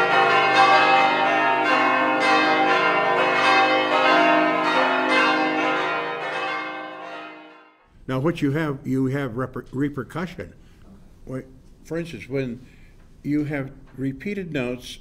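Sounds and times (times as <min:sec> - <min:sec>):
church bells ringing: 0:00.0 - 0:07.9.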